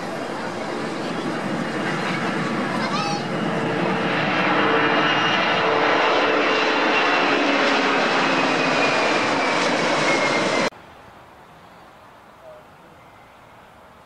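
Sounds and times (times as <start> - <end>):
jet engine noise with high whine: 0.0 - 10.7
faint background noise: 10.7 - 14.0.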